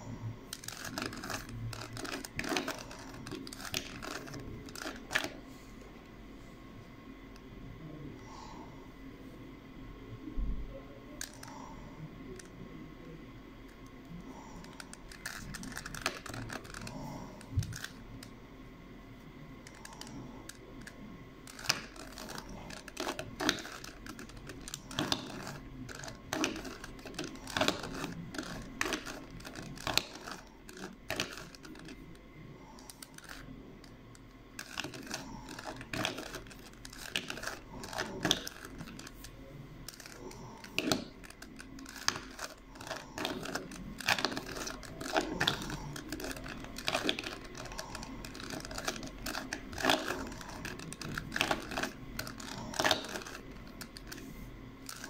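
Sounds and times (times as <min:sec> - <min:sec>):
puzzle cube clicking: 0:00.5 - 0:05.4, 0:14.7 - 0:16.9, 0:20.8 - 0:32.1, 0:32.8 - 0:33.4, 0:34.6 - 0:39.3, 0:39.9 - 0:55.0.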